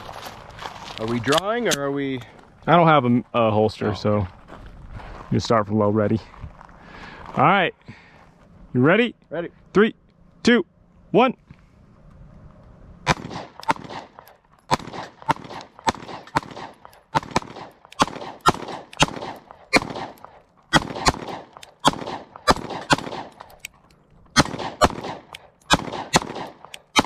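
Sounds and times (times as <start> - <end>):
pistol shots with ringing echo: 13.1 - 23.5, 24.3 - 27.0.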